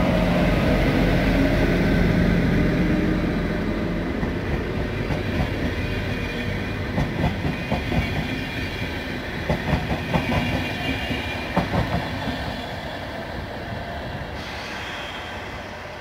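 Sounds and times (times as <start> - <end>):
train rumble: 0.0 - 16.0
train wheels clicking over track: 4.1 - 8.6, 9.4 - 12.6.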